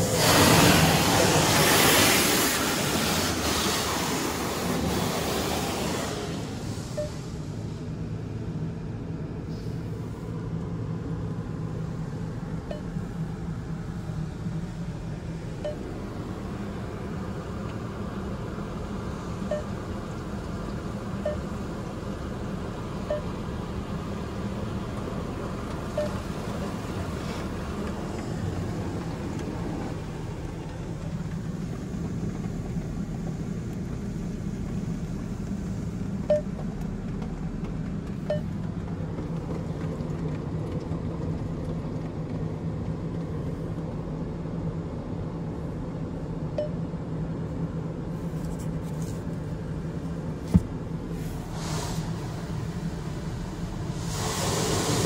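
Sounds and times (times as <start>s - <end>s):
water jets spraying car: 0.0s - 12.5s, 13.2s - 44.9s, 47.8s - 55.0s
low hum: 6.4s - 48.3s.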